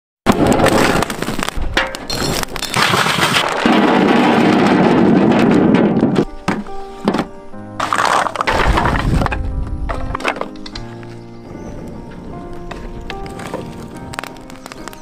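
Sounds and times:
potatoes clattering onto metal platter: 1.8 - 6.2, 7.8 - 10.8
music with steady tones: 6.2 - 15.0.

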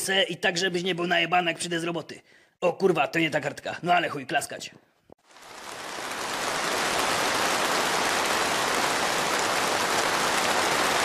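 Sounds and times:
large audience applauding: 5.2 - 11.0.

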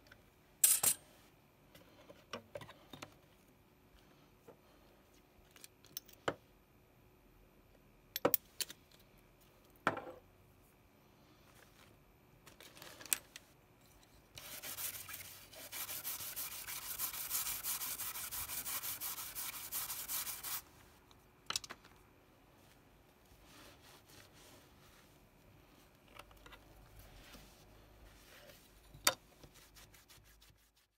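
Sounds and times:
brush scrubbing circuit board: 14.4 - 20.7.

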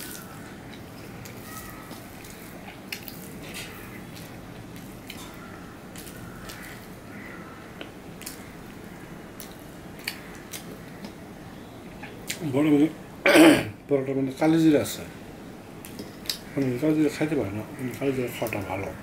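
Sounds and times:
chewing and mouth smacks: 0.0 - 6.9, 7.8 - 8.4, 9.4 - 11.2, 15.8 - 16.5
rice squishing under fingers: 0.0 - 11.2
low background hum: 0.0 - 19.0.

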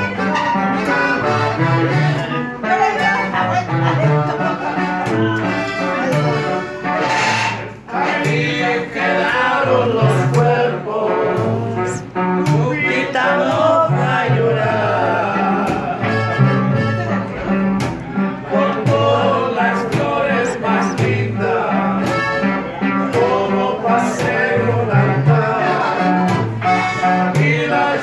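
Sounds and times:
strummed acoustic guitar: 0.0 - 28.0
upright bass plucking: 0.0 - 28.0
person singing: 7.9 - 16.7.

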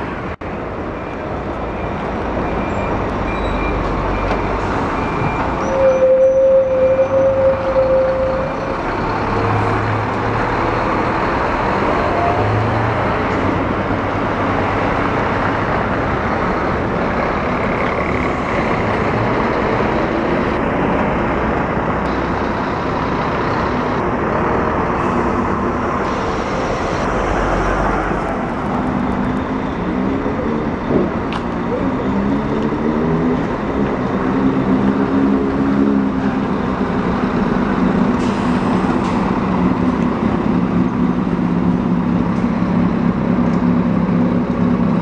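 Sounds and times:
high squeal: 1.8 - 8.8.

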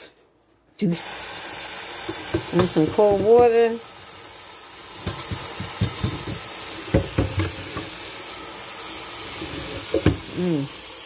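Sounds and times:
tap running into sink: 2.0 - 3.6, 5.0 - 8.0, 9.3 - 10.4
saucepan knocking against sink: 5.0 - 7.9.

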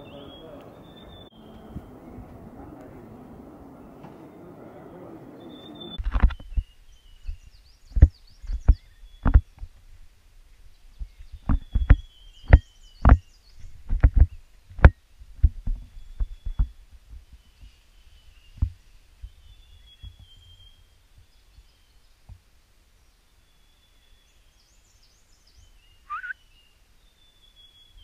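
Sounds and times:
faint bird calls: 0.0 - 9.7, 23.2 - 28.0.

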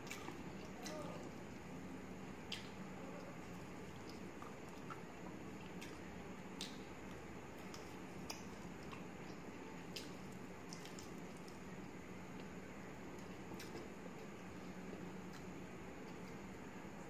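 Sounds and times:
steady low hum: 0.0 - 17.0
wet mouth clicks and smacks: 2.5 - 2.8, 6.6 - 6.8, 13.2 - 13.9.

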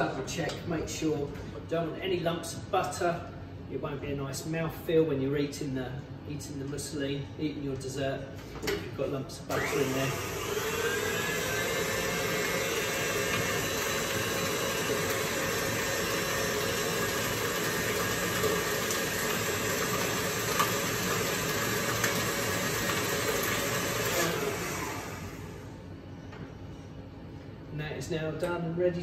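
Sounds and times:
stand mixer whisking: 9.6 - 25.7.

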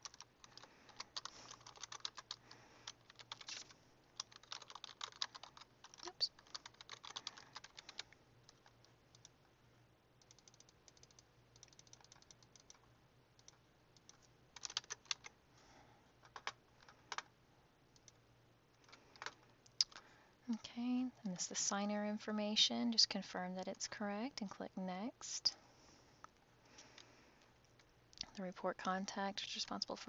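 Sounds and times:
computer keyboard typing: 0.0 - 9.4, 10.2 - 12.8, 13.4 - 15.3, 16.2 - 17.3, 18.8 - 20.0.

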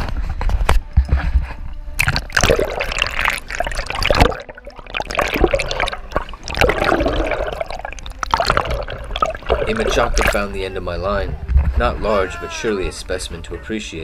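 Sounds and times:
water splashing and gurgling: 2.0 - 10.7.

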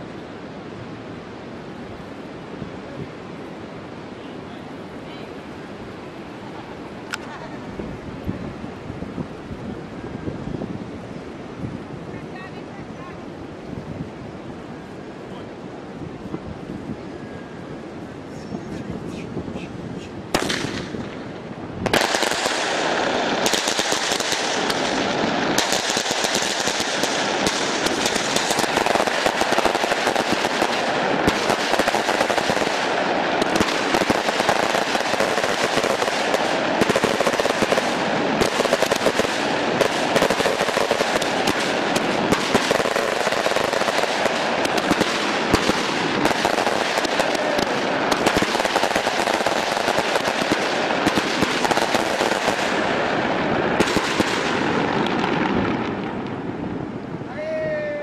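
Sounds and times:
rapid crackling pops: 20.3 - 56.4.

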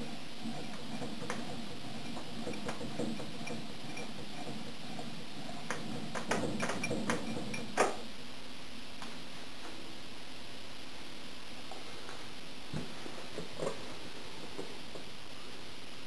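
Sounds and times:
mechanism ticks and clicks: 0.0 - 8.1
refrigerator running noise: 0.0 - 8.2.

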